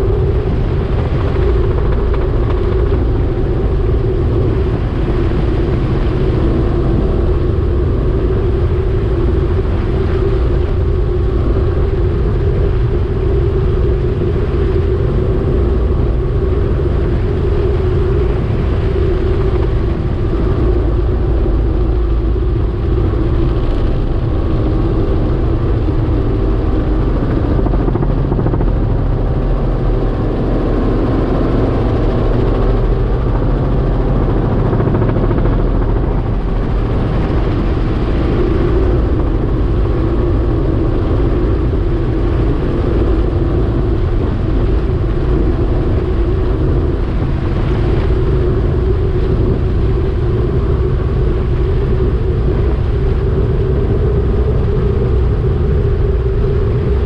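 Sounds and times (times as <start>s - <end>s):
helicopter engine and rotor drone: 0.0s - 57.0s.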